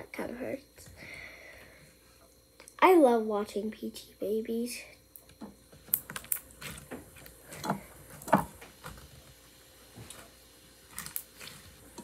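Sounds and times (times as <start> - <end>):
slime squishing with clicking pops: 5.2 - 9.0.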